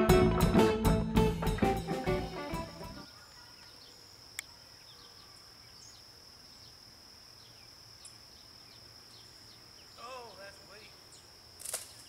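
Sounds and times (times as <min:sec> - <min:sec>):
insects droning: 0:01.7 - 0:12.0
bird chirps: 0:03.0 - 0:06.8
sharp click: 0:11.6 - 0:12.0.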